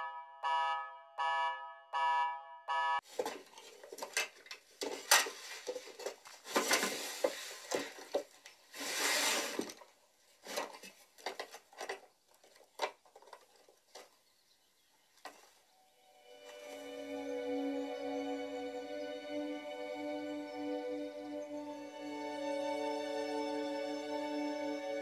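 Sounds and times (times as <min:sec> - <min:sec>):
alarm-like beep: 0:00.0 - 0:03.0
rummaging through a drawer: 0:03.1 - 0:14.1.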